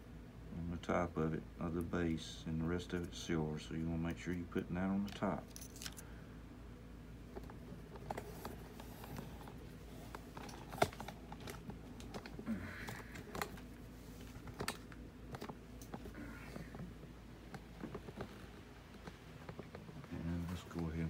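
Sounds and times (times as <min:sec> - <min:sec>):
faint steady hum: 0:00.0 - 0:21.0
tools handled on a workbench: 0:05.0 - 0:06.0.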